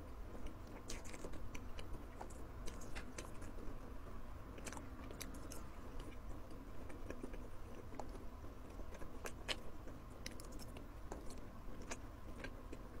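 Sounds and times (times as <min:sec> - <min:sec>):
person chewing food: 0:00.3 - 0:03.9, 0:04.5 - 0:13.0
mouth clicks and smacks: 0:00.4 - 0:03.6.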